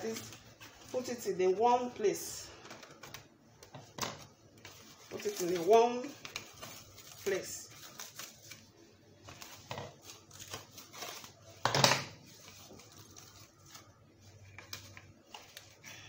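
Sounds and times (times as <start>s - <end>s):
cling film crinkling: 4.4s - 11.6s, 12.2s - 16.0s.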